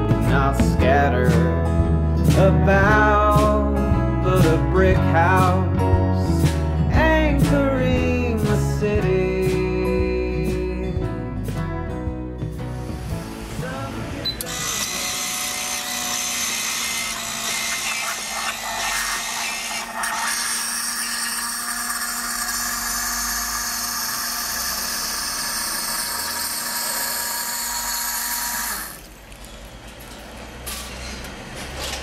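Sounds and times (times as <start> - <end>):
vending machine mixer motor whirring: 14.4 - 29.2.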